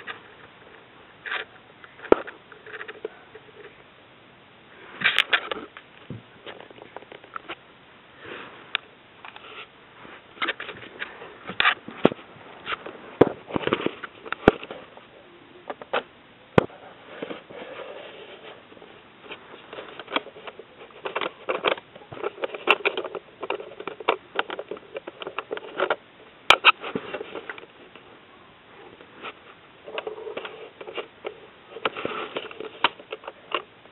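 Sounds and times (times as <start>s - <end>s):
handling rustling: 8.2s - 28.2s.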